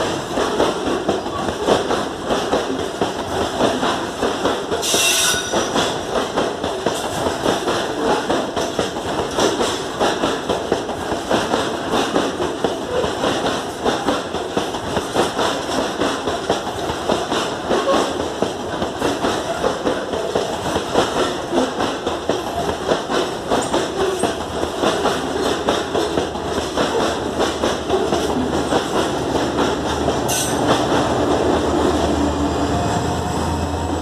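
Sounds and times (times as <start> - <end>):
train wheels clattering on rails: 0.0 - 34.0.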